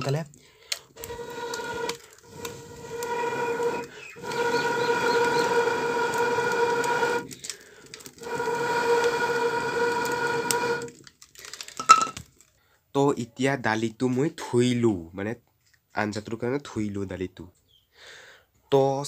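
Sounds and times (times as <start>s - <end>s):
person blowing on fire: 0.7s - 11.0s.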